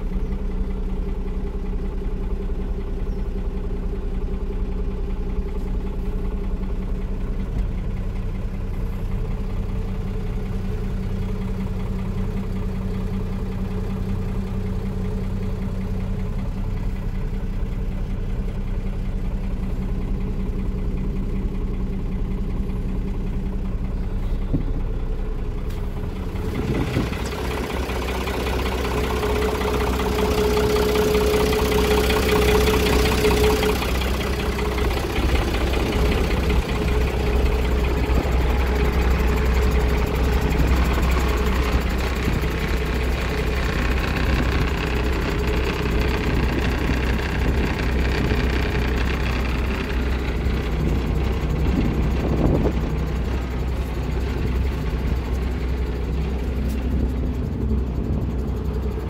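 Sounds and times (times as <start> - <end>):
diesel truck engine idling: 0.0 - 59.0.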